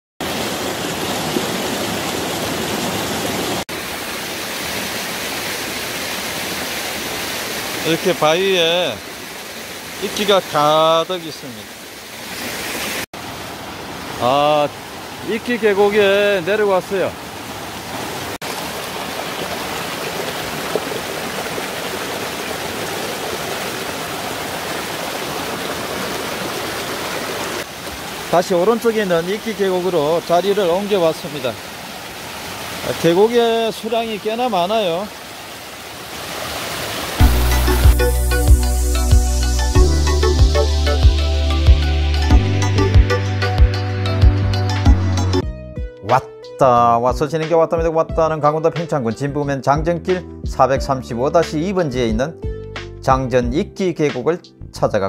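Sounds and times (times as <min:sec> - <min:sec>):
stream rushing over rocks: 0:00.2 - 0:38.2.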